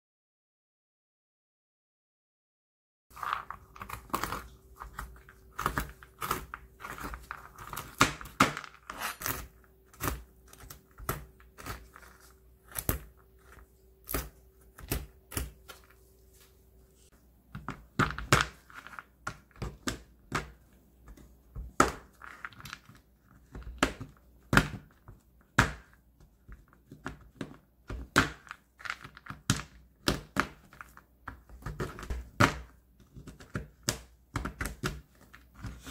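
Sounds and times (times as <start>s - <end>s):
knife chopping on plastic board: 3.8s - 15.9s, 17.5s - 22.1s, 23.5s - 35.9s.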